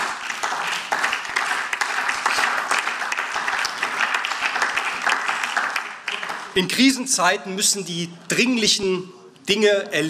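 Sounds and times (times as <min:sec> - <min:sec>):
crowd clapping: 0:00.0 - 0:07.0.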